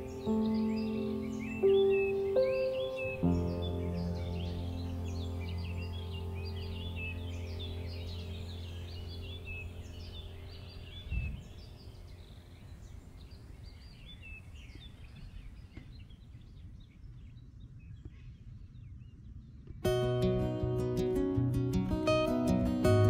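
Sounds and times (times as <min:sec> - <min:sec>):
low hum: 0:00.0 - 0:15.6
small birds chirping: 0:00.0 - 0:23.0.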